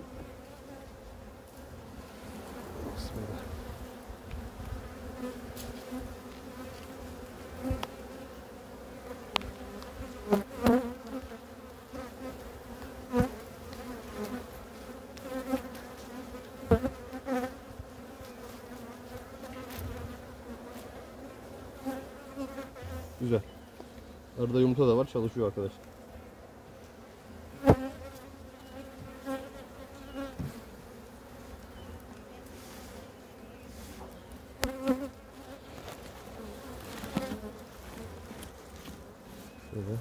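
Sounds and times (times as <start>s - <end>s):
honeybees buzzing: 0.0s - 40.0s.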